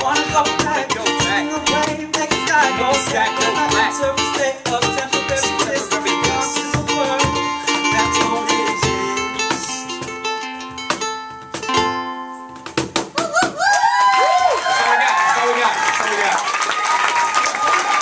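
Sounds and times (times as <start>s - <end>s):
ukulele strumming chords: 0.0s - 13.2s
people whooping: 13.1s - 18.0s.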